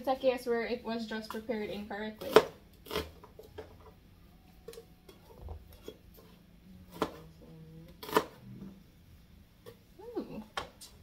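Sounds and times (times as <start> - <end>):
knife chopping on plastic board: 2.2 - 3.8.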